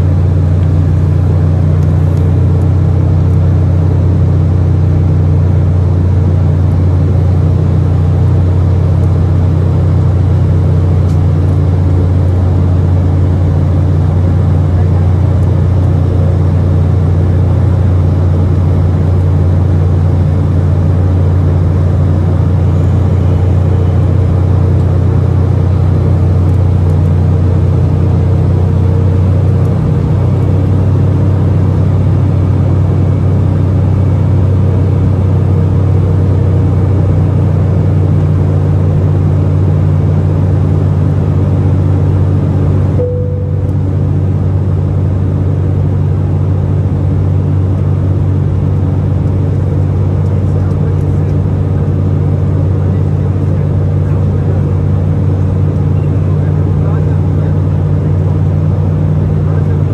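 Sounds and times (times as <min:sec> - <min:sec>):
airliner cabin engine rumble: 0:00.0 - 0:59.9
faint steady hum: 0:42.6 - 0:51.3.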